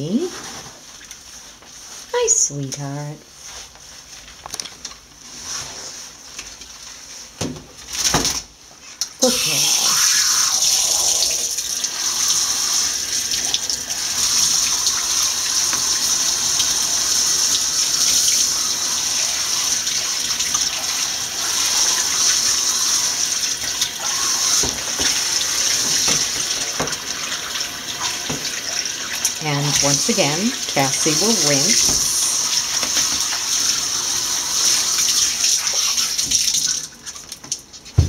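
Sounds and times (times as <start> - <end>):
shower sprayer hissing: 9.2 - 36.4.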